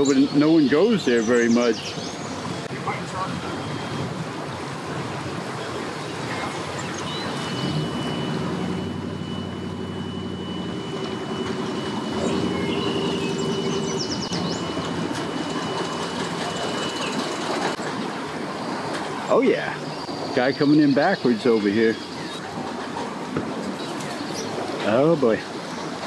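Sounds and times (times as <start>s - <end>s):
engine running at low revs: 0.0s - 21.3s
thin high whine: 6.3s - 17.8s.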